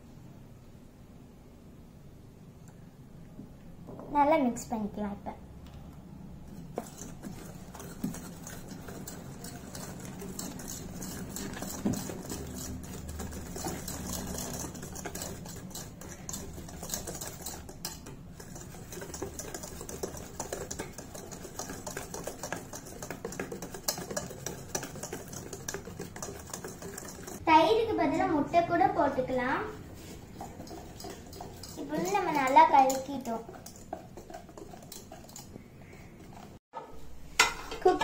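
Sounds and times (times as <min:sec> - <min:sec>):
whisk scraping metal bowl: 0:06.5 - 0:27.4, 0:29.6 - 0:36.6.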